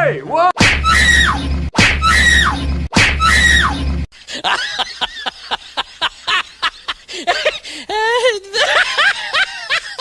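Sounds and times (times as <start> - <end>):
snickering laughter: 4.3 - 7.5, 8.6 - 10.0.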